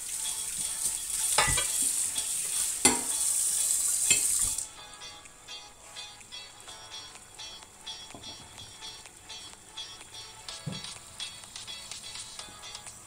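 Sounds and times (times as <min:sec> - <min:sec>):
food hissing on gas stove: 0:00.0 - 0:04.7
faint background music with beat: 0:00.0 - 0:13.0.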